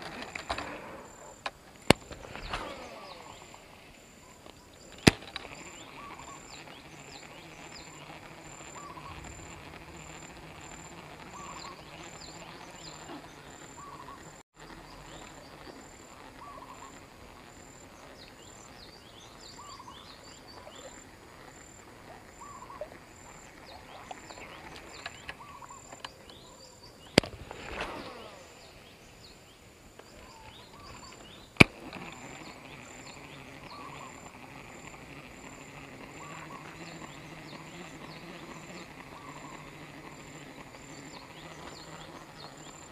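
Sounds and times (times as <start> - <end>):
fishing reel whirring: 0.0 - 14.4, 30.0 - 42.9
bird chirps: 0.0 - 34.4, 35.8 - 42.9
pulsing insect call: 0.0 - 42.9.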